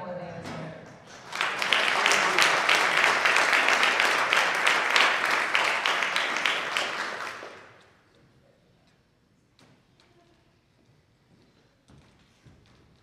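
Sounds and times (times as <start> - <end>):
audience applauding: 1.0 - 8.0.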